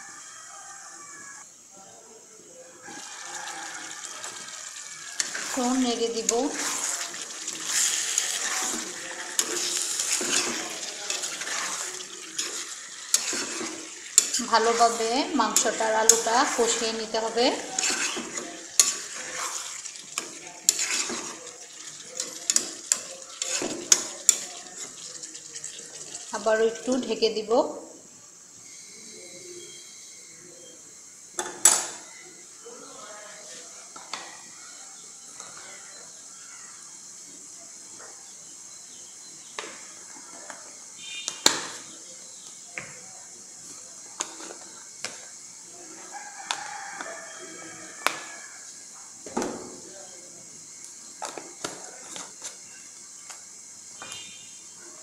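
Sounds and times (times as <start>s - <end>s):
food sizzling in a pan: 0.0s - 55.0s
oil popping and crackling: 2.8s - 27.5s, 39.5s - 47.4s, 50.6s - 54.5s
spatula scraping a pan: 2.9s - 27.3s, 44.2s - 45.3s.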